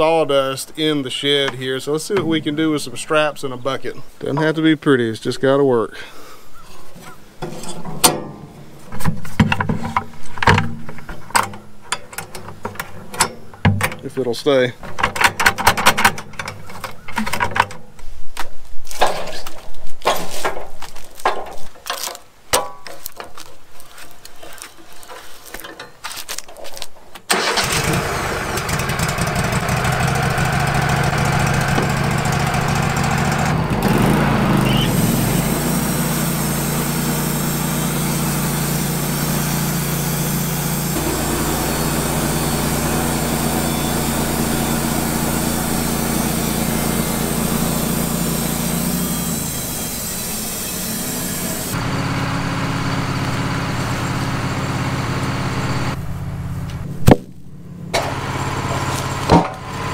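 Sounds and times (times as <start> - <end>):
sawmill gas engine running: 27.3 - 56.8, 57.7 - 59.9.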